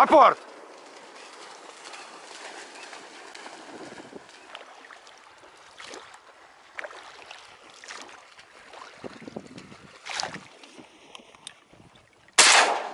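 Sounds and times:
water sloshing: 0.2s - 12.9s
wind on microphone: 3.4s - 4.4s, 8.9s - 10.9s.

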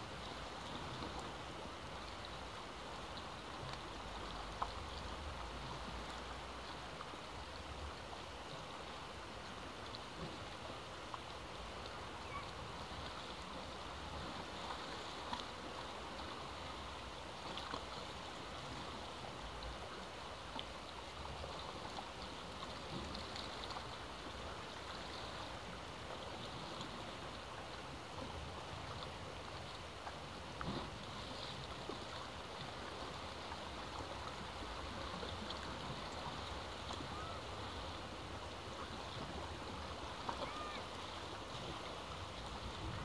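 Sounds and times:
sea surf washing: 11.6s - 43.0s.

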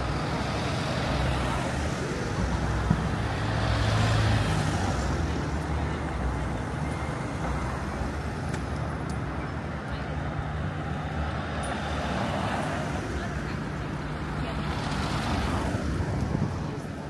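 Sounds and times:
passing road vehicles: 0.0s - 17.0s.

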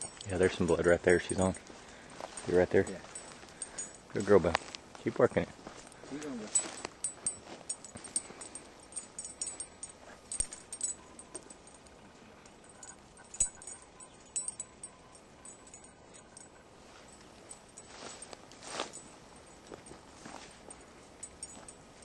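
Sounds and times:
twigs and leaves crackling: 0.0s - 8.2s
light metallic jingles: 0.0s - 22.0s
footsteps in dry brush: 1.4s - 8.2s, 17.8s - 20.8s.

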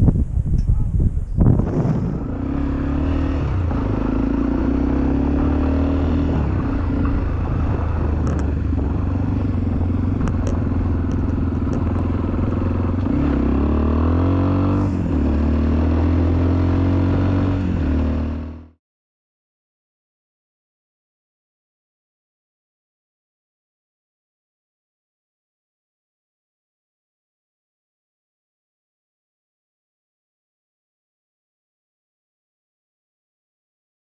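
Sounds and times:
motorcycle engine running: 1.4s - 18.8s.

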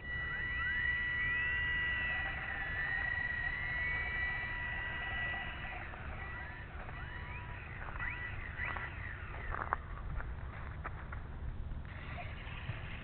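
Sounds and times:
model plane electric motor whining: 0.0s - 10.0s.

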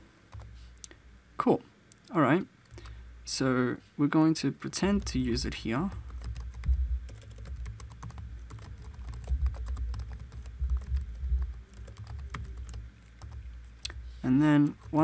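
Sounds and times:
computer keyboard typing: 4.9s - 14.0s, 14.6s - 15.0s.

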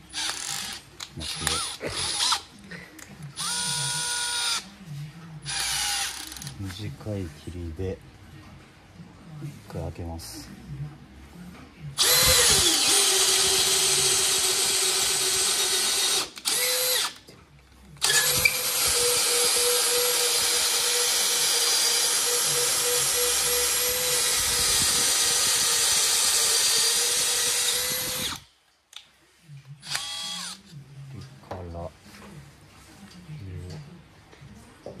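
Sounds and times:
drill boring through wood: 0.2s - 2.4s, 3.4s - 4.6s, 5.5s - 6.5s, 12.0s - 17.2s, 18.0s - 28.4s, 29.8s - 30.6s.

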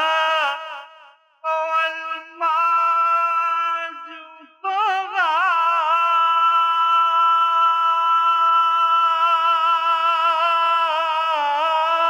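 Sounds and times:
person singing with vibrato: 0.0s - 12.0s.

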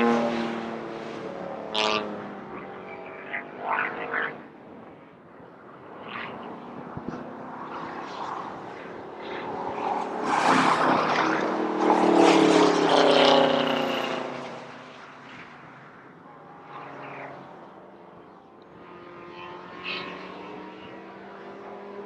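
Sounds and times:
race car engine passing by: 0.0s - 4.4s, 6.0s - 22.0s
distant race car engines: 0.0s - 22.0s.

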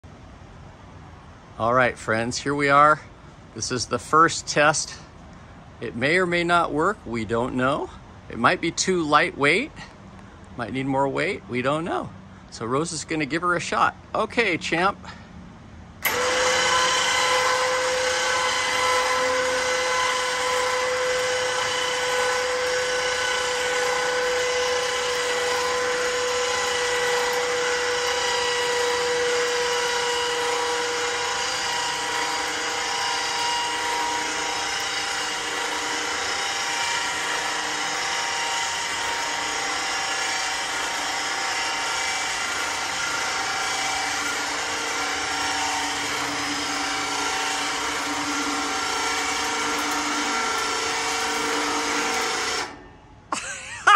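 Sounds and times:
electric winch motor whine: 16.0s - 53.9s.

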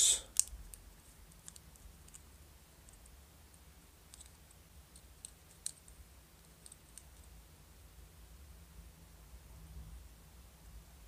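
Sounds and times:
plastic parts clicking: 0.3s - 2.3s, 4.1s - 5.9s.

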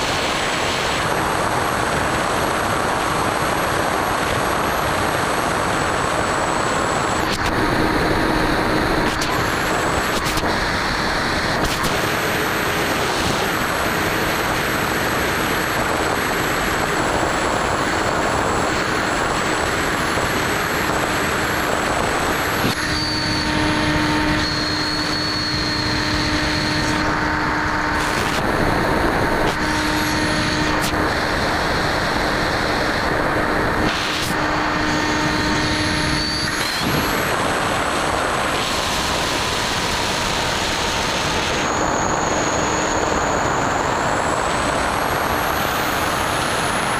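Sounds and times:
electric motor and propeller humming: 0.0s - 46.9s
wind rushing over camera: 0.0s - 46.9s
steady motor tone: 4.9s - 46.9s.

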